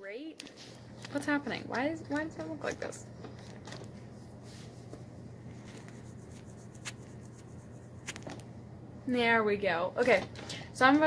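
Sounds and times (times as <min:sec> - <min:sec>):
steady low hum: 0:00.0 - 0:11.0
scratchy rustling: 0:03.3 - 0:08.4.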